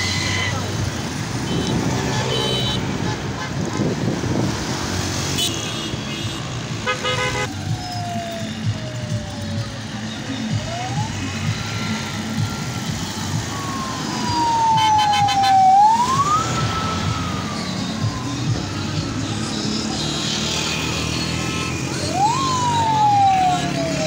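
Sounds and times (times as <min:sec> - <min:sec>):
traffic rumble: 0:00.0 - 0:24.0
vehicle siren wailing: 0:07.3 - 0:24.0.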